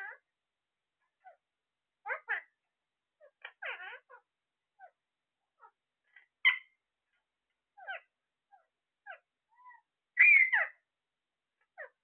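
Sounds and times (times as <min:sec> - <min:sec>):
parakeets squawking and chirping: 0:02.0 - 0:02.6, 0:03.2 - 0:05.0, 0:05.6 - 0:06.8, 0:07.8 - 0:10.8, 0:11.7 - 0:12.0
long wavering parakeet call: 0:03.2 - 0:04.2, 0:07.8 - 0:10.8.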